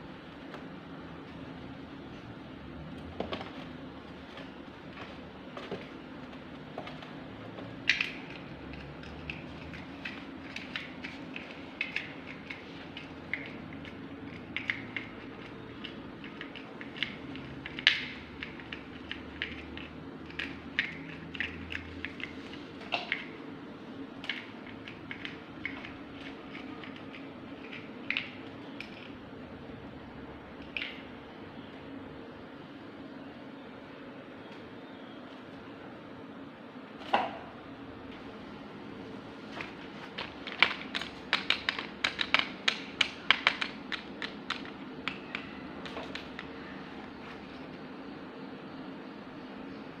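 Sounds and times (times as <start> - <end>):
steady low hum: 0.0 - 50.0
plastic toy blocks clicking: 7.7 - 22.4, 40.2 - 46.6.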